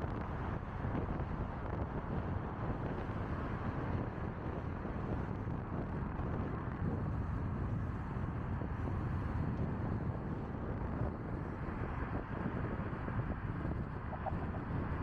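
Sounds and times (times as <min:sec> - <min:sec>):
wind buffeting microphone: 0:00.0 - 0:15.0
car driving rumble: 0:05.0 - 0:15.0.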